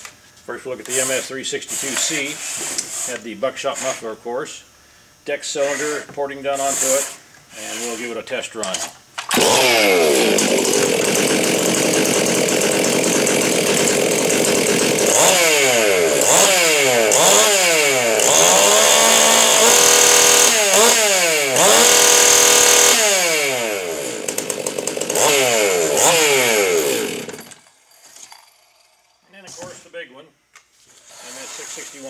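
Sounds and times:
chainsaw revving: 9.3s - 27.7s.

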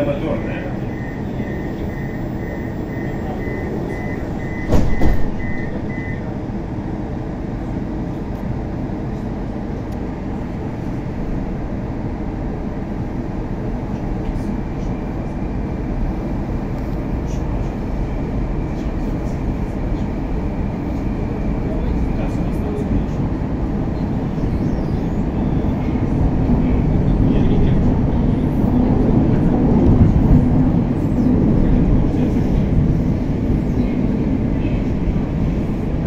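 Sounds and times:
train rumble: 0.0s - 36.0s
door warning beeps: 0.4s - 6.3s
train doors shutting thump: 4.3s - 5.8s.

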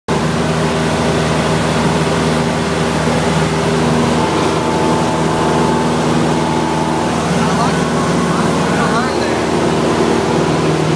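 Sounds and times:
propeller airplane engine in cockpit: 0.1s - 10.9s
thin high tone: 3.0s - 10.1s.

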